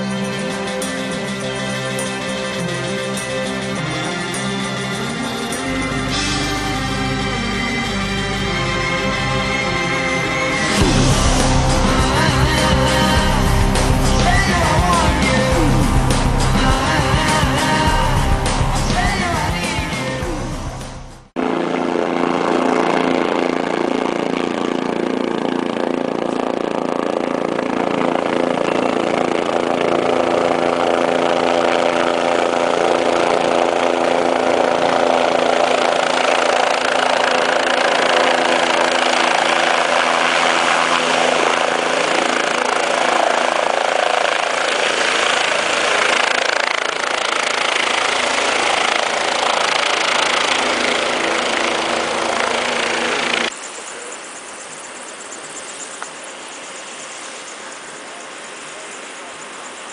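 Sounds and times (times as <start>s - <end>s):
helicopter engine and rotor: 0.0s - 59.9s.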